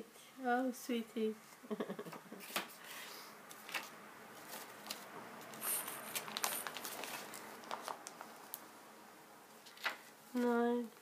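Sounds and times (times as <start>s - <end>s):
paper rustling and crinkling: 3.5s - 8.6s, 9.6s - 10.6s.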